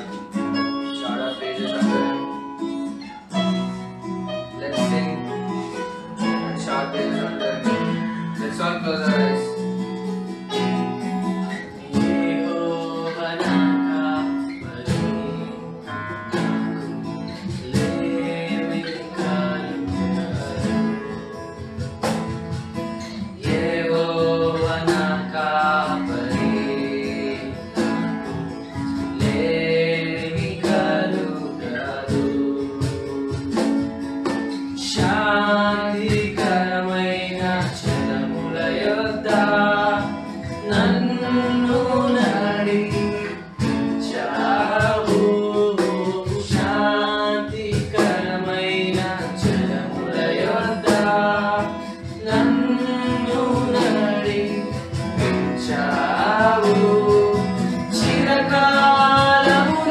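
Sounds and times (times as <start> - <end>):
cajon beat: 0.0 - 59.9
strummed acoustic guitar: 0.0 - 59.9
men singing together: 11.5 - 21.3, 23.0 - 33.7, 34.8 - 59.9.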